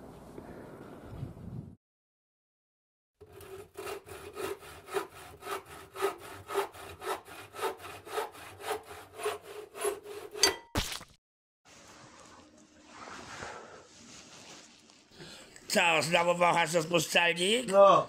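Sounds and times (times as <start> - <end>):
hand saw cutting: 3.2 - 10.6.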